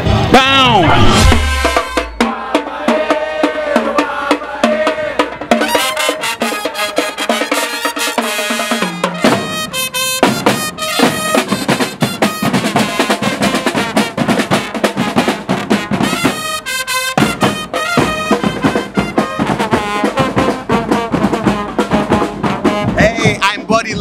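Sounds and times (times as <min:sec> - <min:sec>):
marching snare drums: 0:00.0 - 0:24.0
trombones playing: 0:05.5 - 0:23.4.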